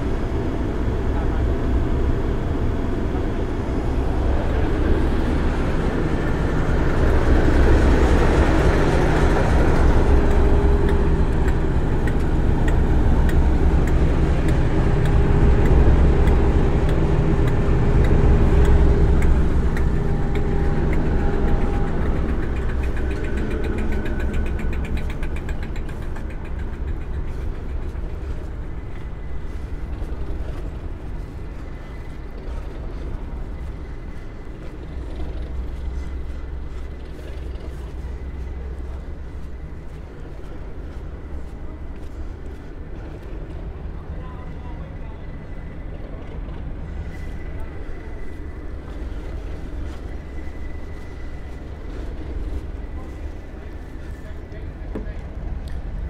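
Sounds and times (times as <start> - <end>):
diesel locomotive engine running: 0.0 - 56.0
light rapid clicks: 10.2 - 28.0.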